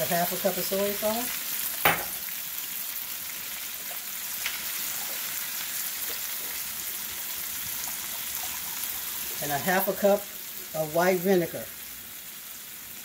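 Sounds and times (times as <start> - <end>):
food sizzling in a wok: 0.0 - 13.0.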